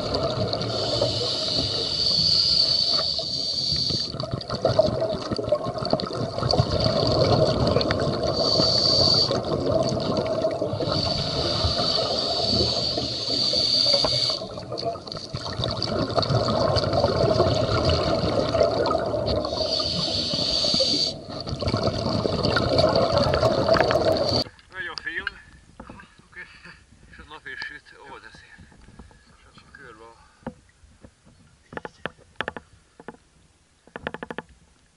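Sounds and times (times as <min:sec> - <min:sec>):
underwater bubbling air: 0:00.0 - 0:24.5
regulator breathing hiss: 0:00.7 - 0:04.2, 0:08.3 - 0:09.4, 0:10.8 - 0:14.5, 0:19.5 - 0:21.3.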